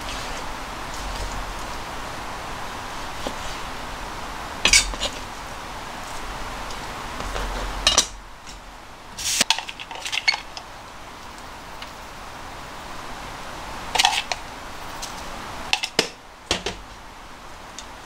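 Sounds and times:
steady background hiss: 0.0s - 18.0s
utensils clinking on dishes: 4.6s - 5.2s, 7.3s - 8.6s, 9.4s - 10.6s, 14.0s - 14.4s.

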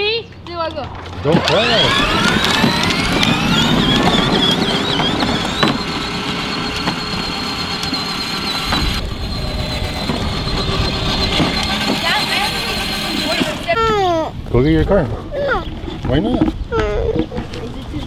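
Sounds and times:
electric motors whining: 0.9s - 14.4s.

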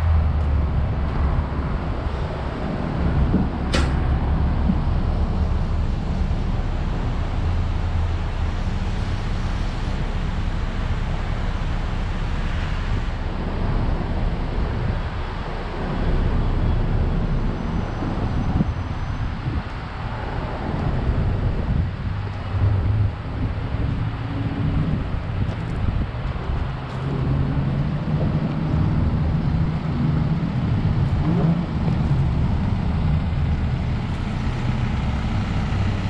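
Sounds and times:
diesel engine idling: 0.0s - 36.0s
sharp click: 3.7s - 4.1s.

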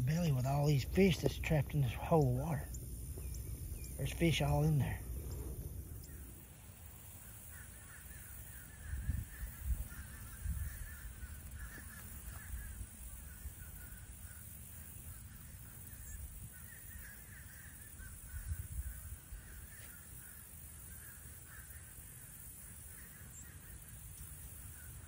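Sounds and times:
baby alligators chirping: 0.0s - 6.4s, 7.2s - 25.0s
low rumble: 5.0s - 6.3s.

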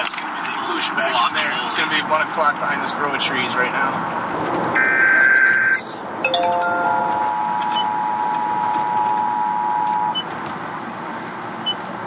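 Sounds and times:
road and engine noise inside car: 0.0s - 6.2s, 7.2s - 12.0s
two-note electronic alert tone: 6.3s - 8.3s.

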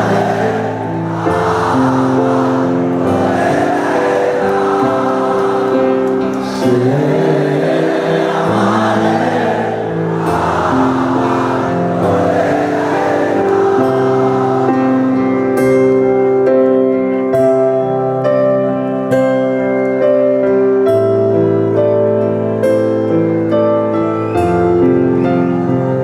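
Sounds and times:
many voices singing together: 0.0s - 16.0s
live band playing held chords: 0.0s - 26.0s.

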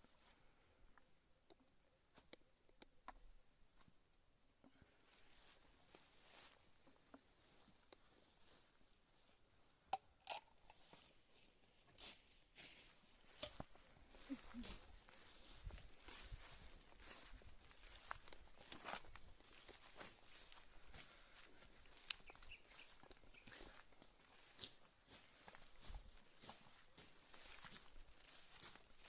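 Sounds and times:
high-pitched insect chorus: 0.0s - 29.0s
footsteps rustling through grass: 5.1s - 6.7s, 7.4s - 9.4s, 10.9s - 29.0s.

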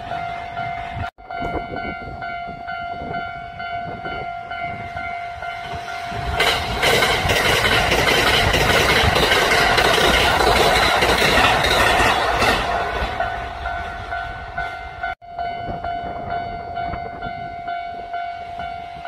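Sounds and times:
electric train passing: 0.0s - 19.0s
wheels clacking over rail joints: 6.2s - 14.7s.

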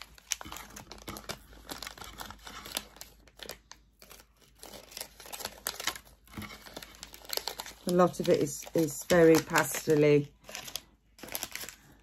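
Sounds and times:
plastic packets crinkling: 0.0s - 12.0s.

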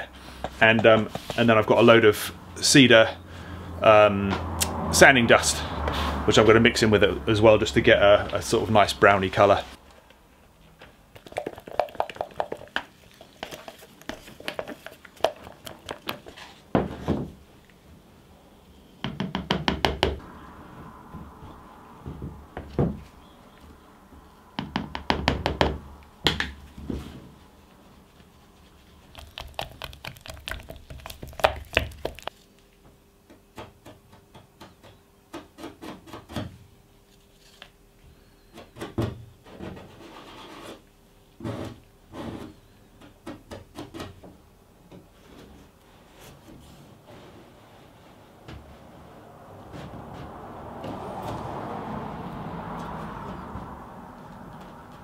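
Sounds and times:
stir stick tapping and scraping: 11.2s - 16.5s, 28.6s - 32.4s.

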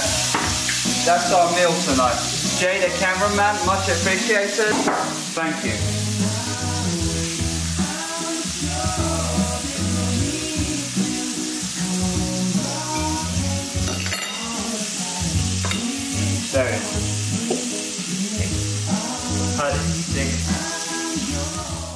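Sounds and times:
food sizzling in a frying pan: 0.0s - 21.9s
music with stepping bass line: 5.8s - 8.0s.

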